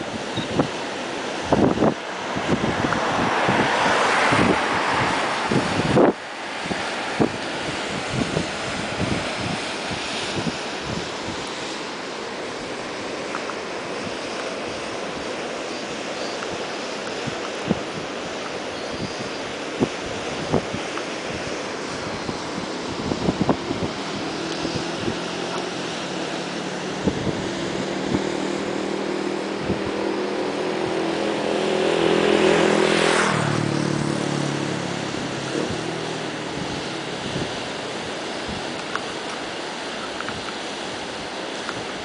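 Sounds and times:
steady rushing noise: 0.0 - 42.0
motor vehicle driving past: 24.0 - 37.6.

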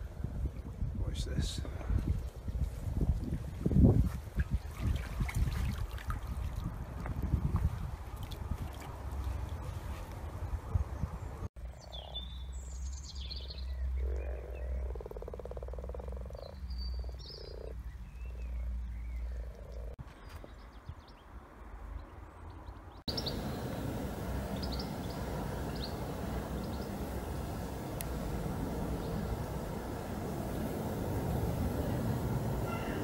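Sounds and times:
outdoor noise hiss: 11.4 - 33.0
frogs croaking in chorus: 13.4 - 18.5, 19.3 - 20.0, 32.6 - 33.0
birds chirping: 16.2 - 33.0.

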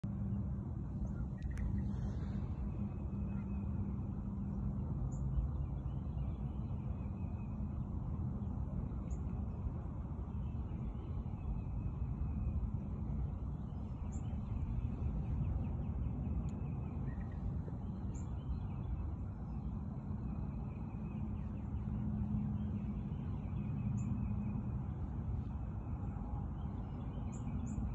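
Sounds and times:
steady low rumble: 0.0 - 27.9
faint birdsong: 0.1 - 27.9.

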